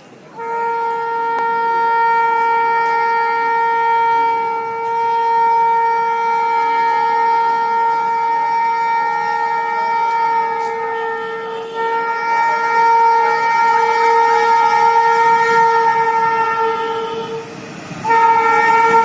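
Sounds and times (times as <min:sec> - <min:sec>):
locomotive horn blast: 0:00.3 - 0:19.0.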